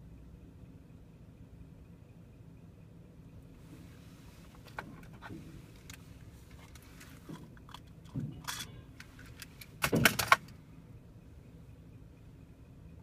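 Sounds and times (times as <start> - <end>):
low background rumble: 0.0 - 13.0
metallic jingling and rattling: 6.6 - 10.5.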